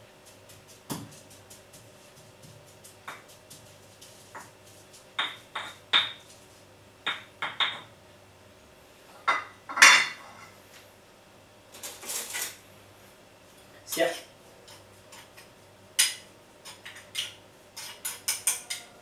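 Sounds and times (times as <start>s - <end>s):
kitchenware knocking against a bowl: 7.1s - 7.9s, 16.8s - 18.9s
dishes clattering: 9.2s - 10.5s, 16.7s - 19.0s.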